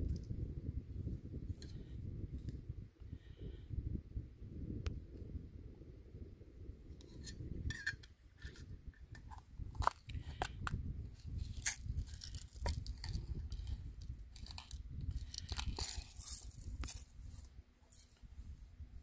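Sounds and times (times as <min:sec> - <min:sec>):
wind rumbling on microphone: 0:00.0 - 0:19.0
metal tin clicks and scrapes: 0:07.0 - 0:17.1.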